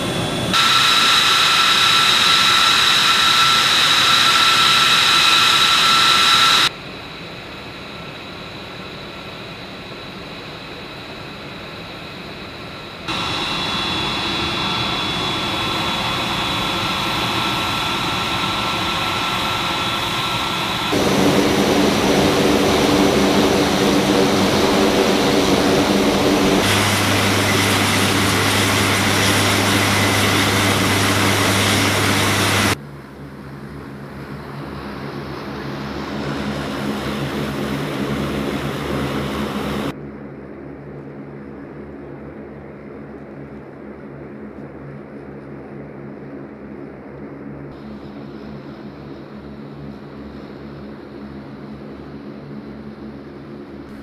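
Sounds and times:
high whine: 0.0s - 32.8s, 34.4s - 40.0s
aircraft engines running: 0.0s - 54.0s.

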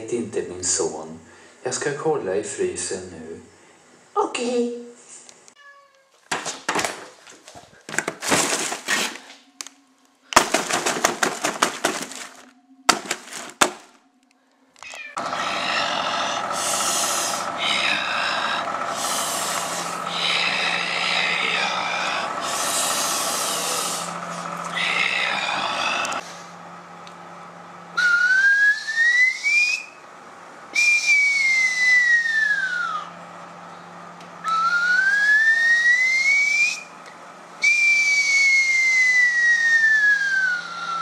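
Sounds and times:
food packaging rustling: 6.1s - 9.4s, 10.4s - 14.0s
freezer drawer opening: 7.9s - 9.3s, 10.4s - 13.9s
microwave oven humming: 15.2s - 41.0s.

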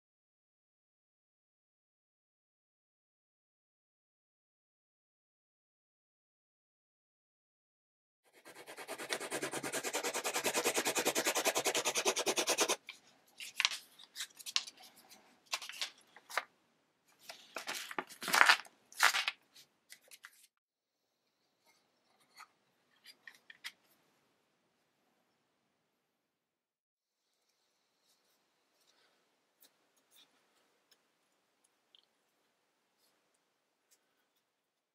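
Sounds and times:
pencil scribbling on paper: 8.3s - 12.8s
paper rustling: 13.4s - 16.5s, 17.2s - 20.5s.

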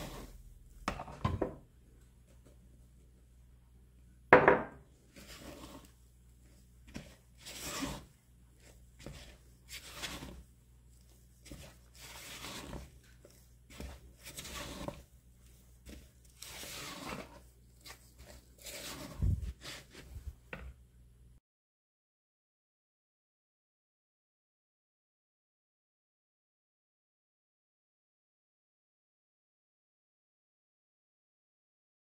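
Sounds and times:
spatula scraping plastic bowl: 0.0s - 1.2s, 5.1s - 20.3s
knock: 4.4s - 4.8s.

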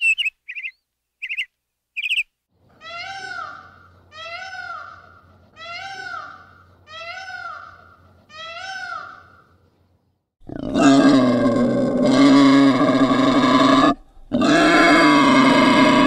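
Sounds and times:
wild boar grunting: 10.4s - 16.0s.

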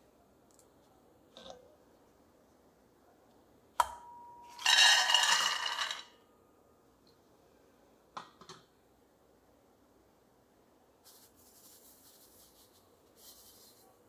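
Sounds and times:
peanuts rattling in metal pot: 4.6s - 6.1s.

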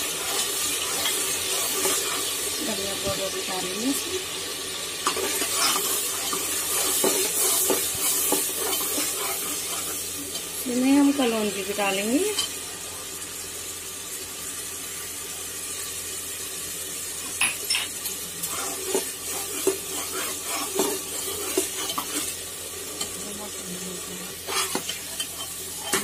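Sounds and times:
masala sizzling in oil: 0.0s - 26.0s
metal spoon scraping a pot: 5.1s - 10.4s, 17.7s - 22.4s, 24.3s - 26.0s.

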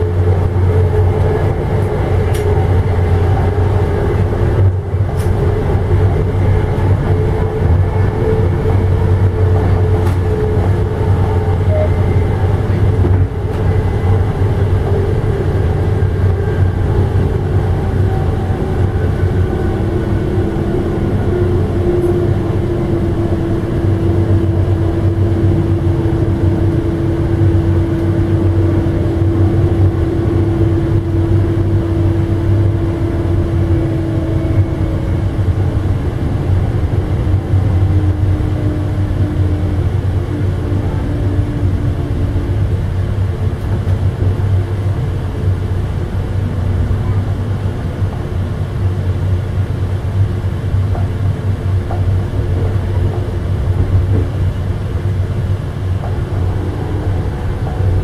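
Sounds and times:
low train hum: 0.0s - 58.0s
train rumbling on track: 0.0s - 58.0s.

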